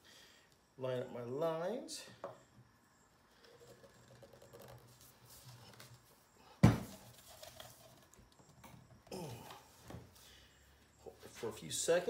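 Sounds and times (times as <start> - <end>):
handling and rubbing of pipe: 3.4 - 6.2, 6.9 - 8.8
pipe thumping on workbench: 6.6 - 7.0.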